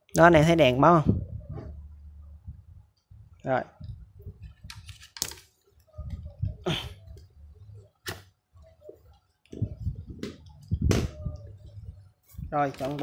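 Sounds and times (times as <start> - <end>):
low rumbling handling noise: 1.0 - 4.8, 9.6 - 13.0.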